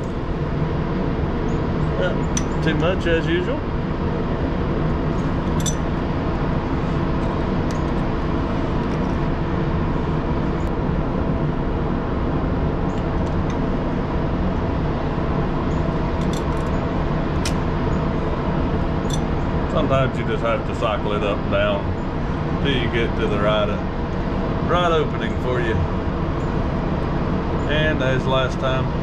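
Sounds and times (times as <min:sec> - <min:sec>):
engine idling: 0:00.0 - 0:29.0
metallic wrench clicks: 0:05.6 - 0:05.8.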